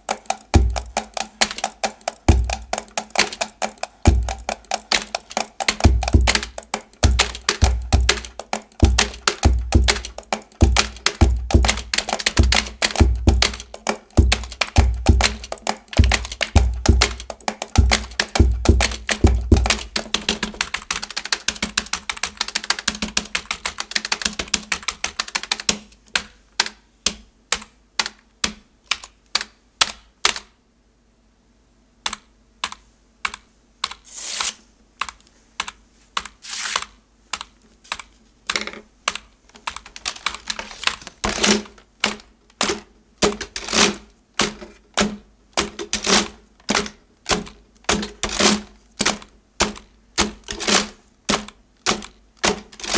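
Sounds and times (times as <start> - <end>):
keyboard key clatter: 0.0 - 26.8, 37.4 - 52.9
mouse clicks beat: 32.0 - 34.0.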